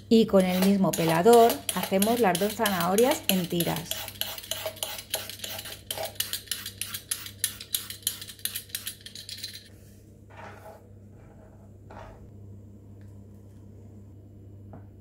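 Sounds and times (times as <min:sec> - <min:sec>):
peeler scraping a carrot: 0:00.3 - 0:09.2.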